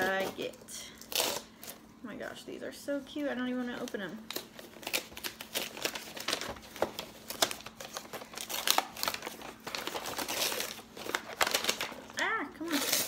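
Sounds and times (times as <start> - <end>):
paper crinkling and tearing: 3.7 - 13.0.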